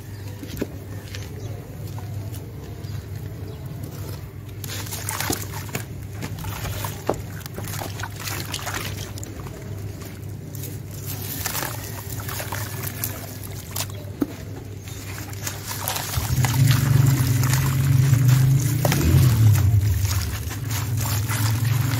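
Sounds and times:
hands splashing in slurry: 4.5 - 21.9
dry sand pouring: 15.0 - 21.9.

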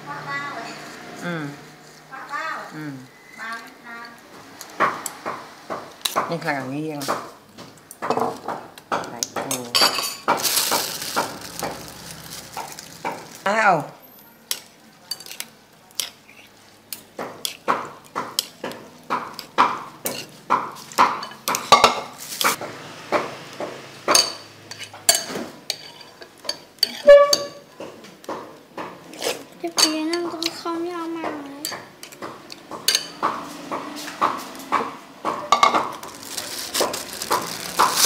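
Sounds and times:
utensils clinking against ceramic bowl: 8.1 - 13.3, 14.5 - 22.6, 24.1 - 27.6, 29.2 - 30.6, 31.6 - 33.3.

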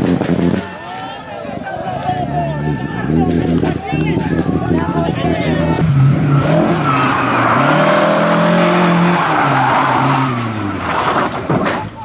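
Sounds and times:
tyres skidding and squealing: 0.0 - 12.0
rally car engine at high revs: 2.6 - 11.6.

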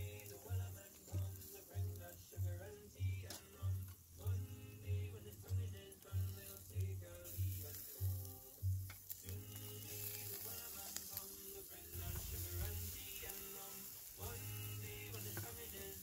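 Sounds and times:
meat sizzling on charcoal grill: 0.0 - 16.0
music with pulsing bass beat: 12.0 - 13.6.

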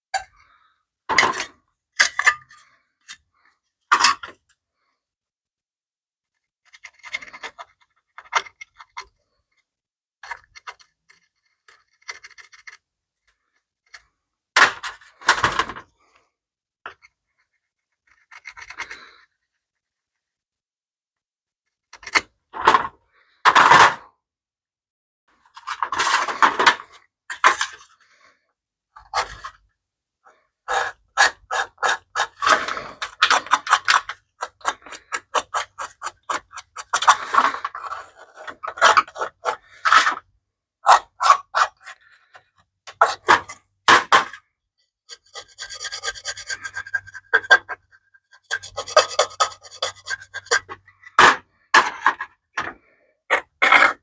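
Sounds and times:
scraper scraping sheet metal: 30.6 - 42.3, 45.1 - 51.4.

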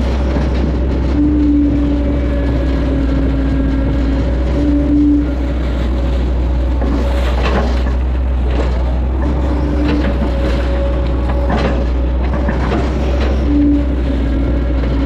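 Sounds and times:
excavator diesel engine running: 0.0 - 15.0
hydraulic whine: 0.0 - 15.0.

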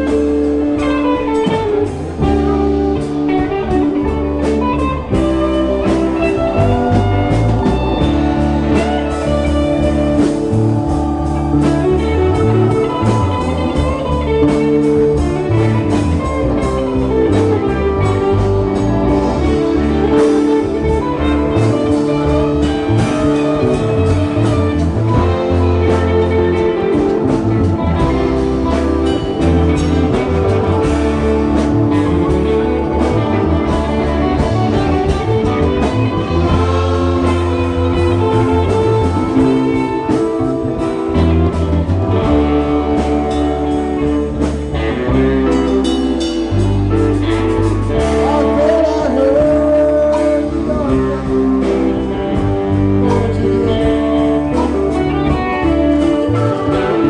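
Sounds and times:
drum kit: 0.0 - 57.0
electric bass: 0.0 - 57.0
electric guitars: 0.0 - 57.0
keyboards: 0.0 - 57.0.

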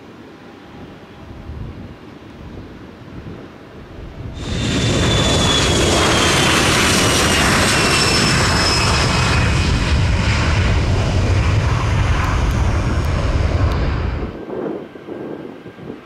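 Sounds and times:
jet engines at takeoff: 0.0 - 16.0.

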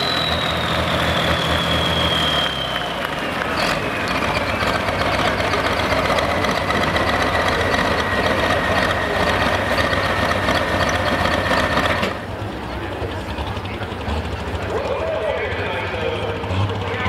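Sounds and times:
tractor diesel idling: 0.0 - 17.0
turbocharger whine: 0.0 - 17.0.

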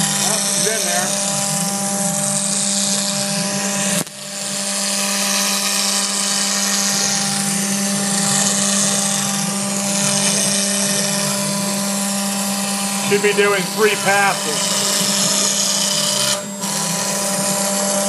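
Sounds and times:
router spindle humming: 0.0 - 18.0
bit cutting plastic hiss: 12.5 - 18.0.

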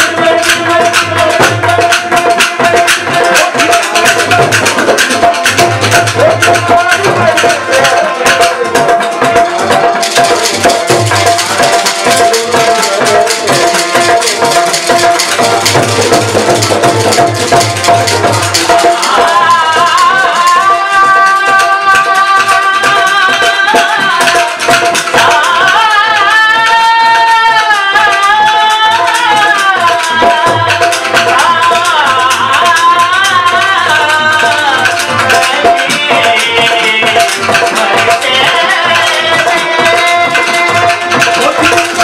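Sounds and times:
person singing: 0.0 - 42.0
harmonium drone: 27.5 - 42.0.

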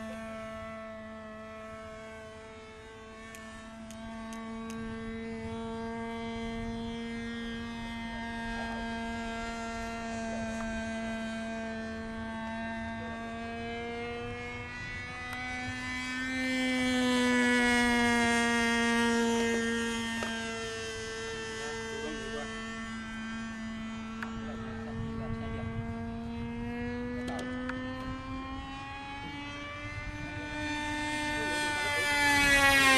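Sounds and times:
model plane motor droning: 0.0 - 32.9.

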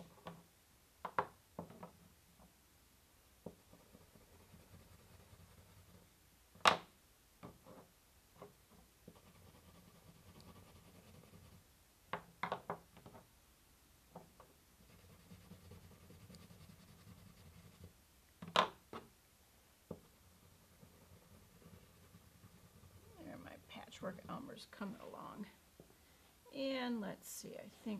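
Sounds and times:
crayon scratching on paper: 3.6 - 6.1, 9.1 - 11.6, 14.8 - 18.0, 20.2 - 24.5.

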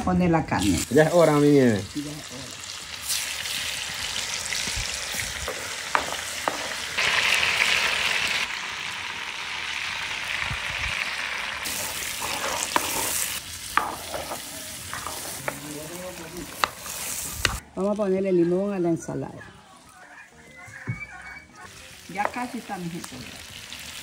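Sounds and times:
meat sizzling in fat: 0.6 - 17.6, 21.7 - 24.0
spatula scraping a pot: 11.7 - 15.6.

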